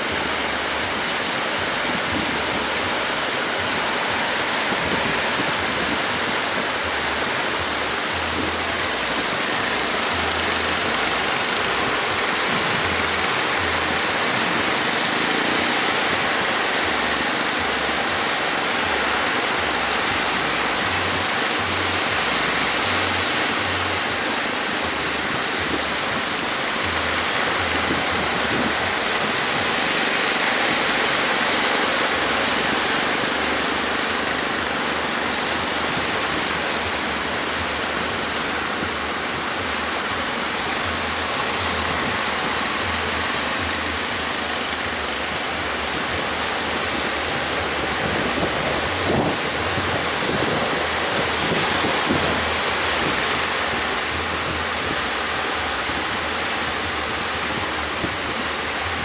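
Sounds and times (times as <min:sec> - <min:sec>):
waves breaking: 0:00.0 - 0:59.0.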